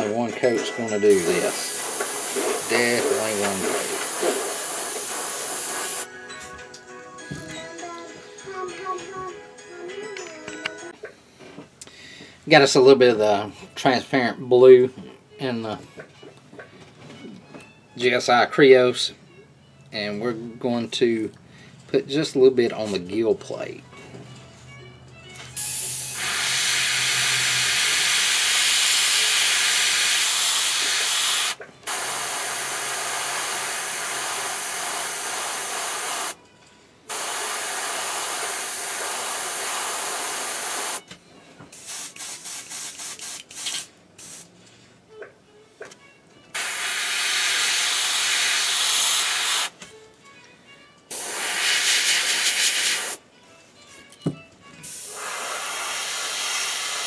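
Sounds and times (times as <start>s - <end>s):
airbrush spraying paint: 1.1s - 6.1s, 25.6s - 36.4s, 37.1s - 41.0s, 41.8s - 44.5s, 46.6s - 49.7s, 51.1s - 53.2s, 54.8s - 57.0s.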